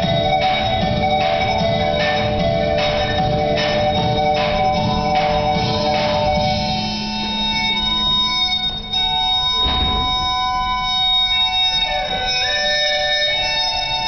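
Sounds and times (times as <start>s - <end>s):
instrumental dance music: 0.0s - 14.0s
heavy thump: 9.6s - 11.6s.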